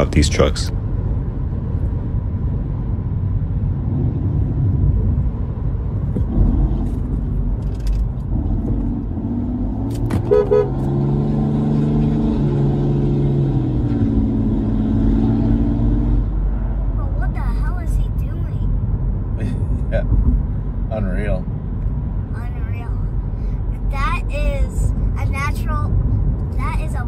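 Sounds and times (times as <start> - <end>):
road and engine rumble: 0.0 - 27.0
car horn toot: 10.2 - 10.8.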